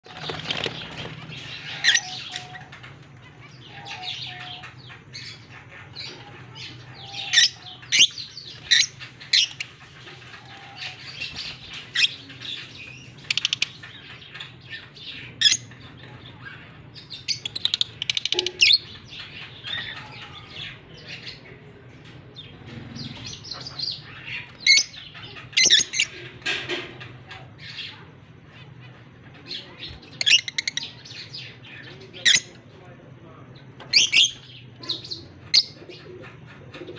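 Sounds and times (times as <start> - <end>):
wings flapping: 0.0 - 1.5
birds chirping and squawking: 0.0 - 36.9.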